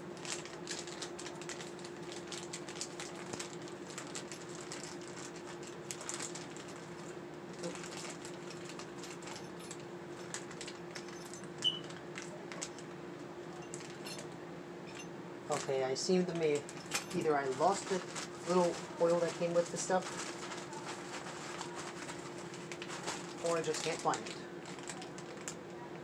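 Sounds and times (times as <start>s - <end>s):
steady hum: 0.0s - 26.0s.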